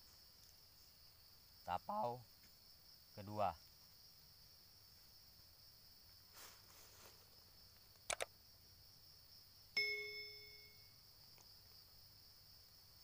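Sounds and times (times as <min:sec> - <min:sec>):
insects droning: 0:00.0 - 0:13.0
double mouse click: 0:08.1 - 0:08.3
bright bell ding: 0:09.8 - 0:10.9.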